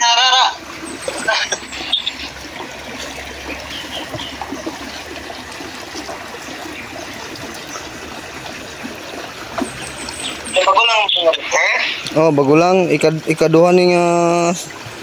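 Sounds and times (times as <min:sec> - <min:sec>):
creek water trickling: 0:00.0 - 0:15.0
splashes of person wading: 0:00.6 - 0:10.7.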